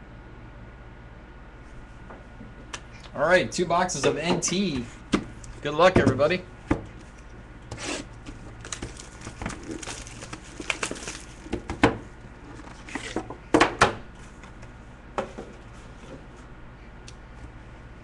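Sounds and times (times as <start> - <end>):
cardboard and cards rustling: 7.8 - 11.8, 12.5 - 13.3
plastic wrap crinkling and tearing: 7.9 - 11.7.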